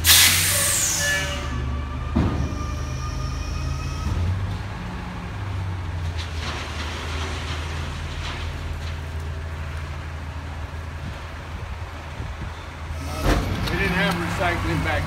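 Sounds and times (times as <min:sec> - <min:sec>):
diesel truck engine running: 0:00.0 - 0:15.0.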